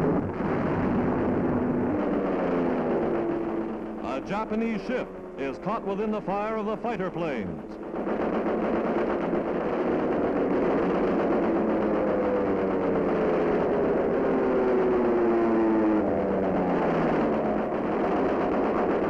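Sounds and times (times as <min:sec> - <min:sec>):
dense rumbling noise: 0:00.0 - 0:15.4
aircraft piston engine droning: 0:01.1 - 0:14.4.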